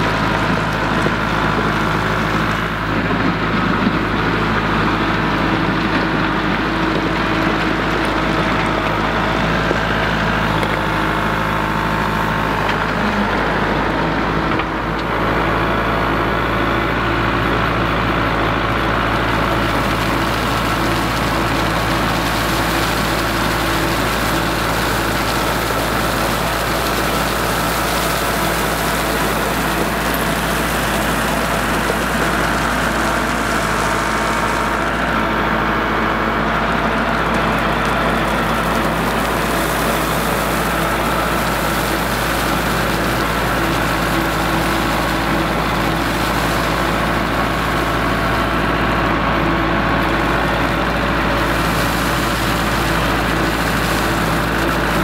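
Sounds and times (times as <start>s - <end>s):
tractor diesel engine running: 0.0s - 55.0s.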